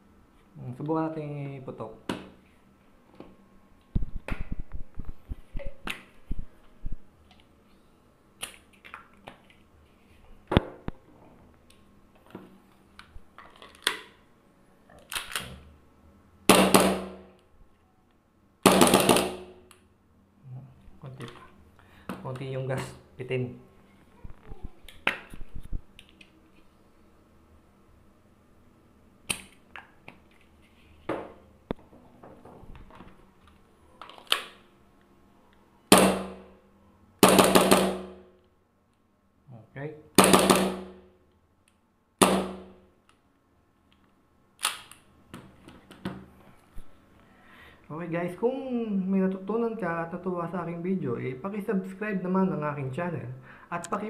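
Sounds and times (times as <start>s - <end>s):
airsoft pistol shots: 16.5s - 17.2s, 35.9s - 36.5s, 37.2s - 38.2s, 40.2s - 41.0s, 42.2s - 42.8s
gas pistol firing bursts: 37.2s - 38.2s
pistol clicks and clacks: 44.6s - 45.0s.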